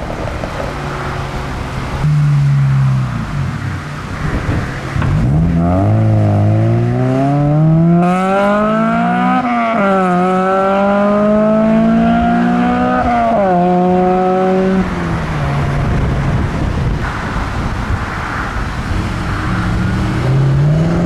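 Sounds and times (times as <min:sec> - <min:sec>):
car accelerating through gears: 0:04.9 - 0:15.9.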